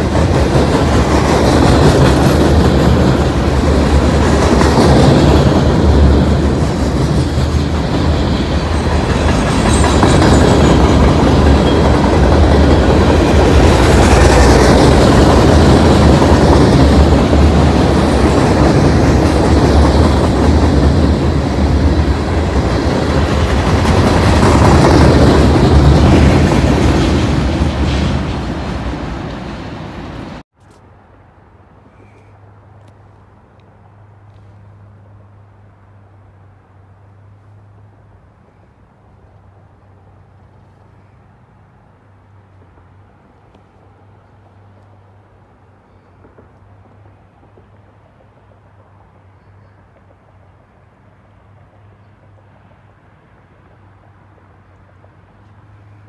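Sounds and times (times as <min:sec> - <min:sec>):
freight train wheels rumbling on rails: 0:00.0 - 0:30.4.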